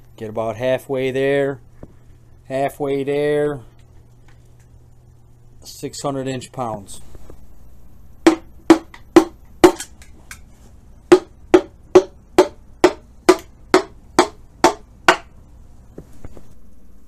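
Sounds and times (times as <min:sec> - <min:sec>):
hammer tapping on metal: 0:08.3 - 0:10.4, 0:11.1 - 0:15.3.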